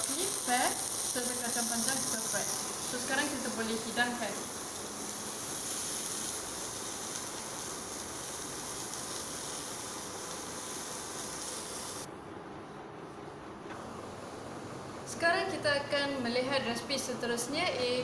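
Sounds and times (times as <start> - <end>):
steady hiss: 0.0 - 15.2.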